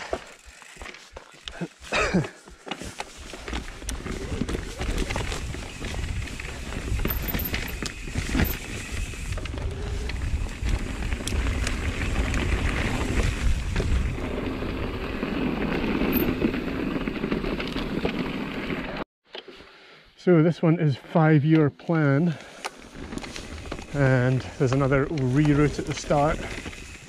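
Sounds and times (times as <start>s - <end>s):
bike knocking and rattling: 0.0s - 19.0s
tyres rumbling over rough ground: 0.0s - 19.0s, 22.8s - 27.0s.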